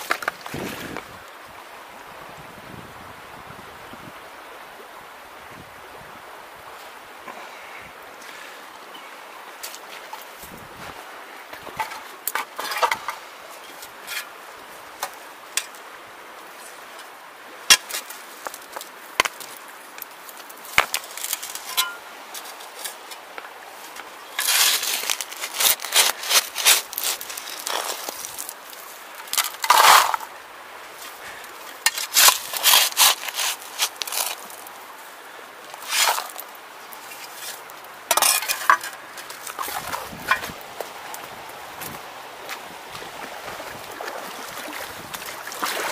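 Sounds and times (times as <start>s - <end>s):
brush rustling against camera: 17.9s - 30.3s, 31.9s - 34.8s, 35.8s - 43.6s.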